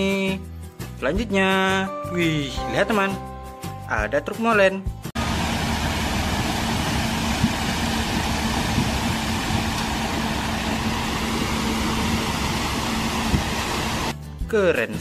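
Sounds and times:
truck engine humming: 5.2 - 14.2.

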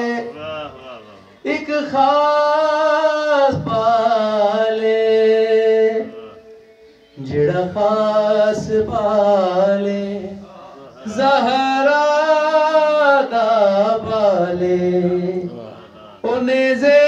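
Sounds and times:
man singing into a microphone: 0.0 - 17.0.

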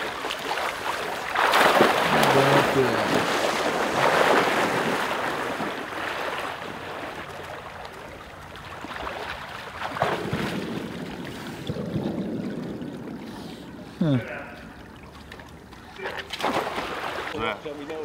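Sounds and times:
dog splashing in water: 0.0 - 11.2, 15.0 - 17.4.

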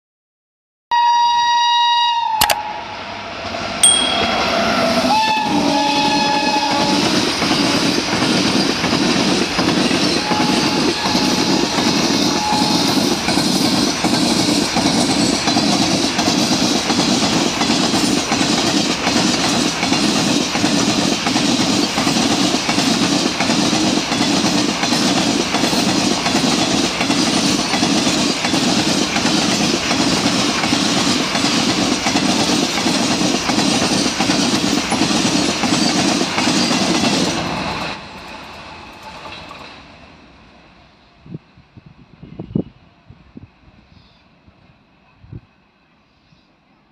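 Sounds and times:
train wheels clattering over rail joints: 6.9 - 39.9.

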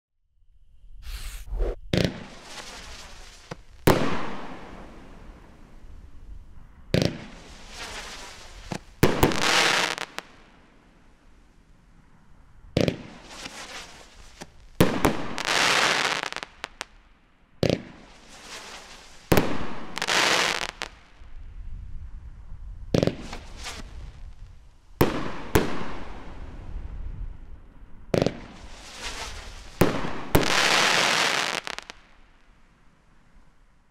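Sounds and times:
firework bangs: 1.1 - 6.1, 6.9 - 10.5, 12.8 - 16.9, 28.1 - 32.1
hissing crackling glitter: 2.3 - 6.1, 7.3 - 10.3.

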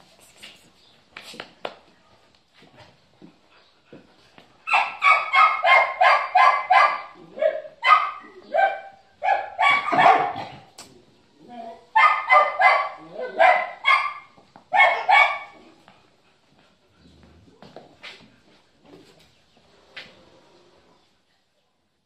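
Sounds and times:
dog barking loudly: 4.7 - 10.6, 11.9 - 15.6.

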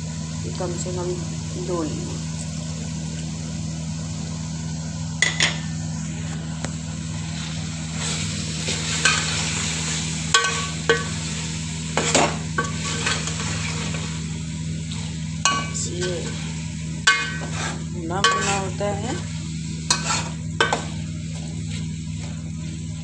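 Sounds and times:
low hum: 0.0 - 23.0
meat sizzling in oil: 6.8 - 23.0
ladle scraping pot: 17.1 - 20.9.

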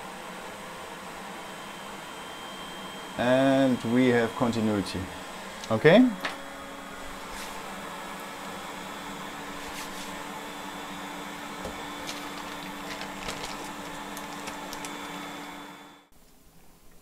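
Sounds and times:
electric fan whirring: 0.0 - 16.2.

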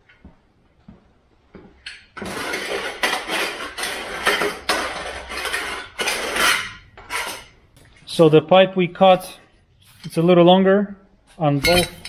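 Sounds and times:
metal scraping on metal: 2.2 - 7.6.

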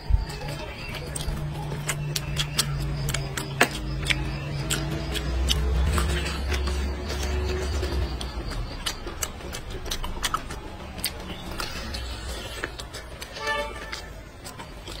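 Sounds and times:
man chewing and lip-smacking: 0.0 - 15.0.

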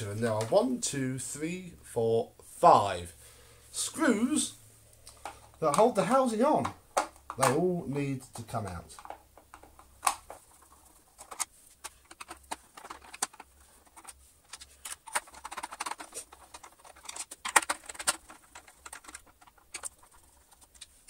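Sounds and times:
sharp plastic clack: 9.0 - 10.4.

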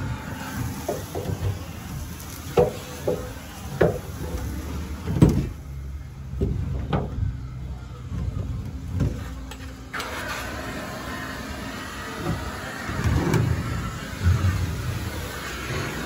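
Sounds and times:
industrial vacuum cleaner humming: 10.0 - 16.0.

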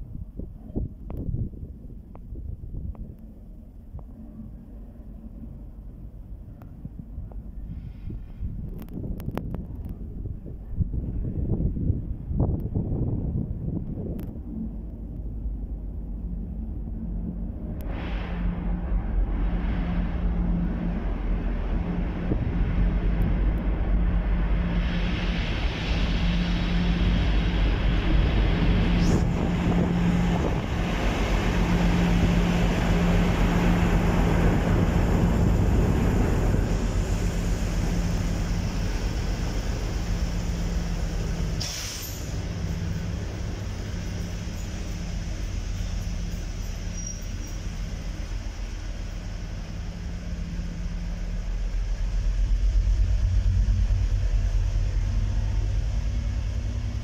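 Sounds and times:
diesel locomotive engine drone: 0.0 - 57.0
train wheel rumble: 0.0 - 57.0
air brake hiss: 7.6 - 8.6, 41.5 - 43.0.

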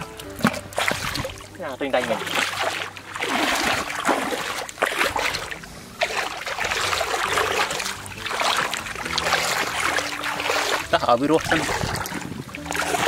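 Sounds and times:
water splashing and sloshing: 0.0 - 13.0.

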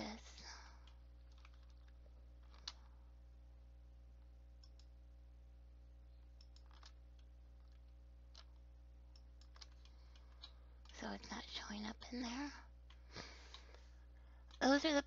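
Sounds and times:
steady low hum: 0.0 - 15.0
computer mouse clicks: 0.8 - 2.9, 4.6 - 5.0, 6.2 - 11.3
keyboard clicks: 0.8 - 2.9, 4.6 - 5.0, 6.2 - 11.3.

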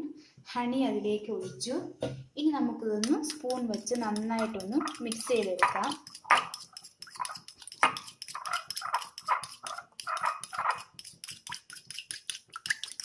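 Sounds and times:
spoon scraping glass bowl: 3.0 - 13.0
dog yipping: 8.4 - 10.8.

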